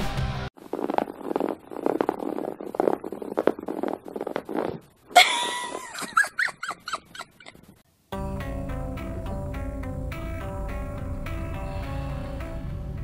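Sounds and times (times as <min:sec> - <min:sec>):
guitar music: 0:08.1 - 0:13.0
background music: 0:08.2 - 0:13.0.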